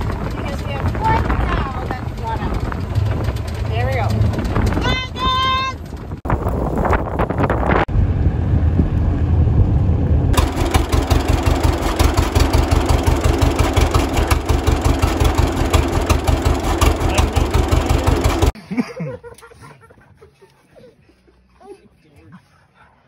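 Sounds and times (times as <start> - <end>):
tractor engine running: 0.0 - 18.6.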